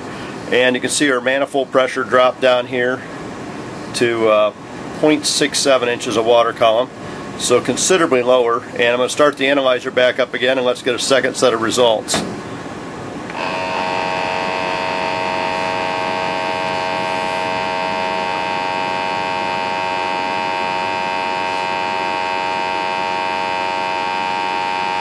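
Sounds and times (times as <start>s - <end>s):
pump humming: 12.1s - 25.0s.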